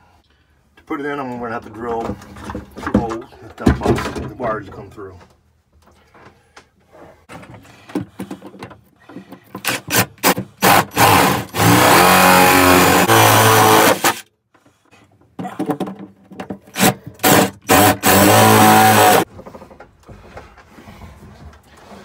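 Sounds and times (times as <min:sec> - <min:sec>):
cordless drill boring through wood: 0:09.6 - 0:14.2, 0:16.8 - 0:19.2.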